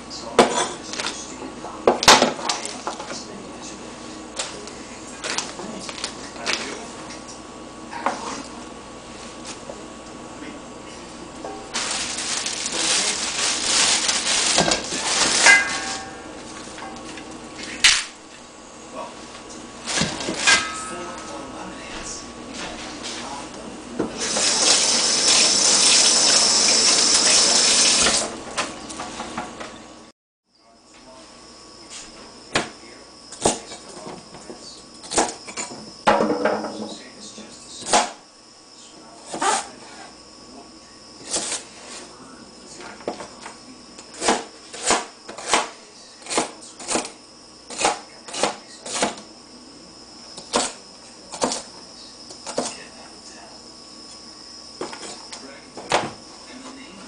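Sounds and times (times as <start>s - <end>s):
water splashing into sink: 24.2s - 28.3s.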